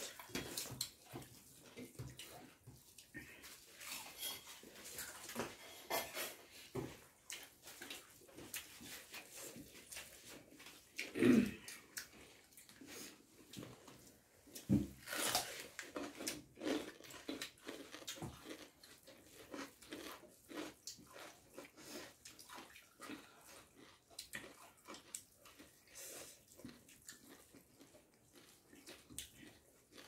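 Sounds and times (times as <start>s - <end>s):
fingers mixing wet rice: 0.0s - 14.7s
chewing and lip smacks: 15.4s - 30.0s.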